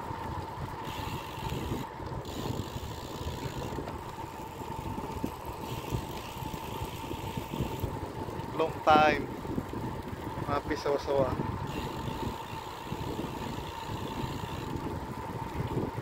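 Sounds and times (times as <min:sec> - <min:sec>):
bicycle tyre noise on road: 0:00.0 - 0:16.0
wind rumbling over microphone: 0:00.0 - 0:16.0
thin steady whine: 0:10.6 - 0:14.9.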